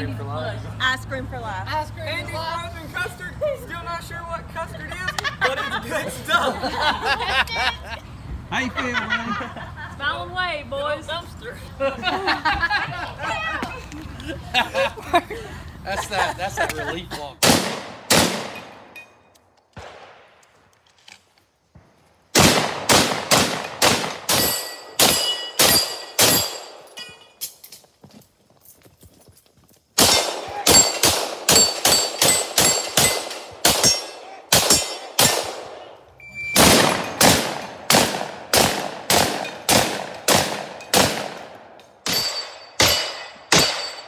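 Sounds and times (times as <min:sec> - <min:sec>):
rapid gunshots: 0:17.4 - 0:18.6, 0:22.4 - 0:26.5, 0:30.0 - 0:35.7, 0:36.6 - 0:41.5
steel targets ringing: 0:24.3 - 0:27.4, 0:30.1 - 0:35.4, 0:42.0 - 0:44.0.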